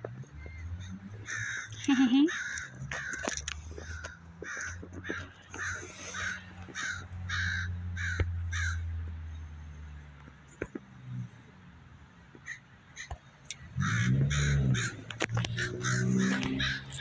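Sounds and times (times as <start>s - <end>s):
crow cawing: 0.4s - 8.9s, 13.8s - 17.0s.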